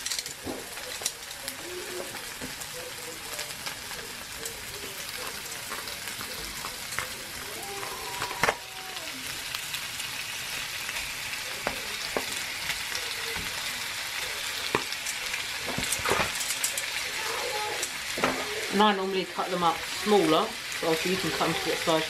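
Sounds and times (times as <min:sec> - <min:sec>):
onion sizzling in hot oil: 0:00.0 - 0:22.0.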